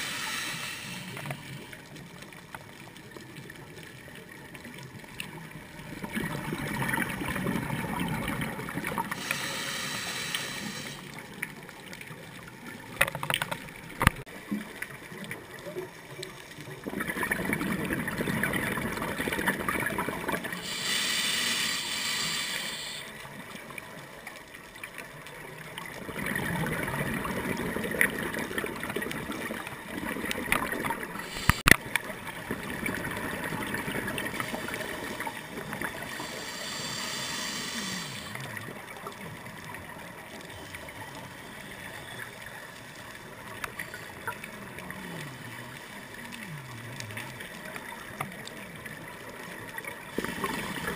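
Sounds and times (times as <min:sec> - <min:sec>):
regulator hiss on inhale: 0:00.0 - 0:01.8, 0:09.1 - 0:11.2, 0:20.6 - 0:23.3, 0:31.2 - 0:31.8, 0:36.0 - 0:38.6
exhaled air bubbling underwater: 0:00.0 - 0:50.9.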